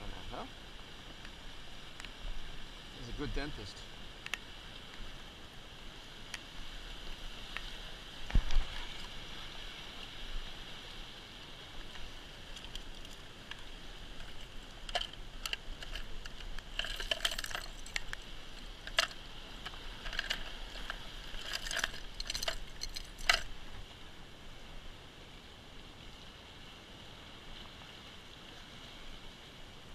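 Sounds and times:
waves washing on rocks: 0.0 - 24.2
rummaging through plastic tackle box: 14.2 - 23.5.

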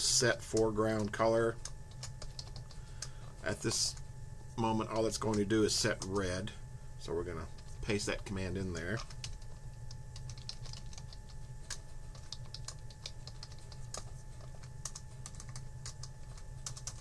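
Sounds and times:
low steady hum: 0.0 - 17.0
typing on computer keyboard: 0.6 - 3.2, 8.8 - 17.0.

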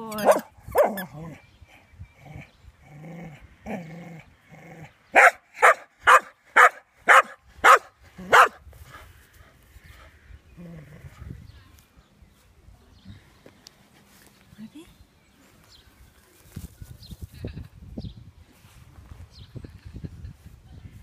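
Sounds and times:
dog barking: 5.2 - 8.6.

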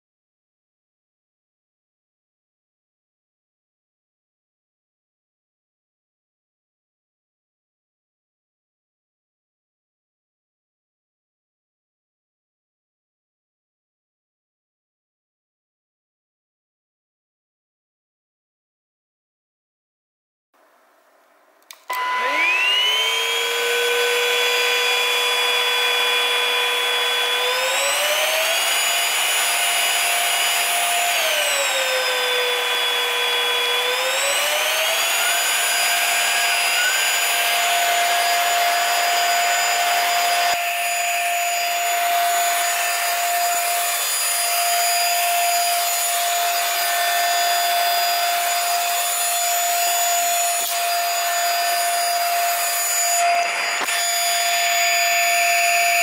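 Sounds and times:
vacuum motor whining: 21.7 - 56.0.

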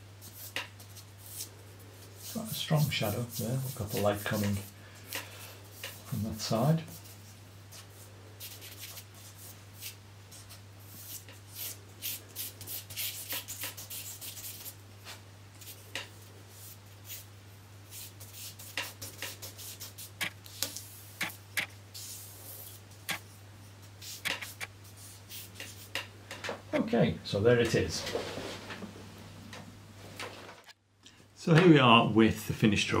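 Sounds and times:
charcoal scratching on paper: 0.2 - 1.5, 2.1 - 15.9, 16.5 - 17.3, 17.9 - 23.3, 24.0 - 26.0.

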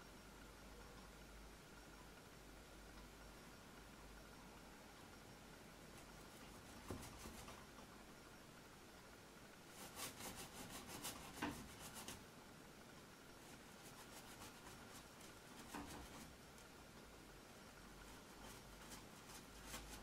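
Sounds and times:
paintbrush scratching on canvas: 9.7 - 12.2, 13.4 - 16.3.

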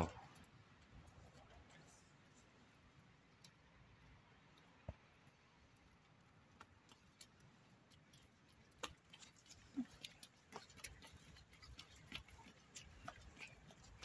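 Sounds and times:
footsteps on cobblestones: 6.6 - 14.0.

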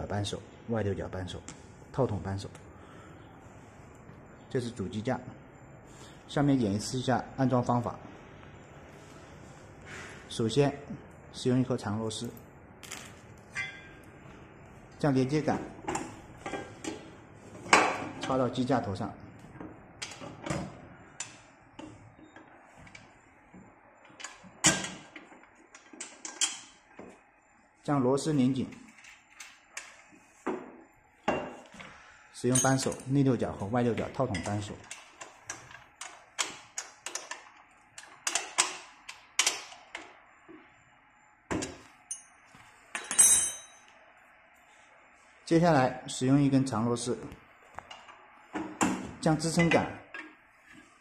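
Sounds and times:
steel parts clinking: 12.8 - 14.1, 32.5 - 33.2, 42.1 - 43.9.

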